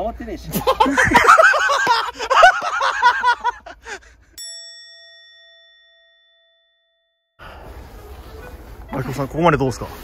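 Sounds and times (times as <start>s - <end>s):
bell-like ding: 4.4s - 7.4s.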